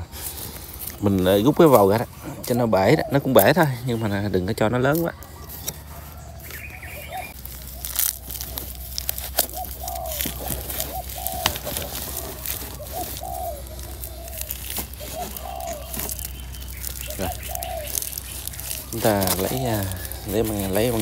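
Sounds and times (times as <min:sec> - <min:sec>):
sand scraping: 0:00.0 - 0:21.0
plastic crinkling: 0:04.9 - 0:21.0
short bird calls: 0:05.1 - 0:21.0.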